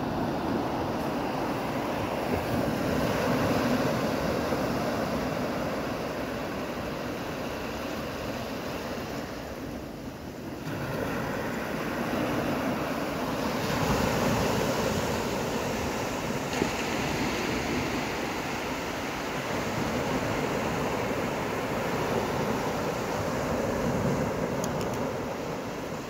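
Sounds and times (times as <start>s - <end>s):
small surf breaking on beach: 10.5s - 26.0s.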